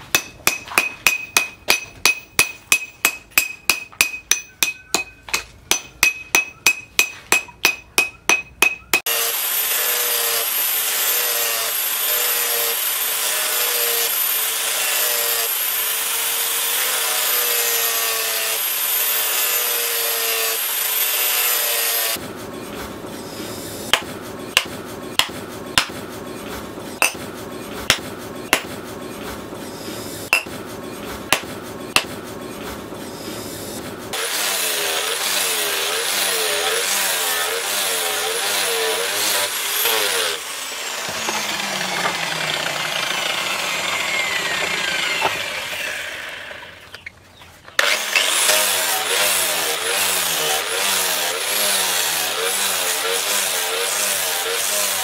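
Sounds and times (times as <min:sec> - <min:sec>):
hammer blows with metallic ring: 0:00.0 - 0:09.1, 0:27.0 - 0:28.9, 0:30.3 - 0:30.6
angle grinder whine: 0:09.0 - 0:22.2, 0:26.3 - 0:47.0.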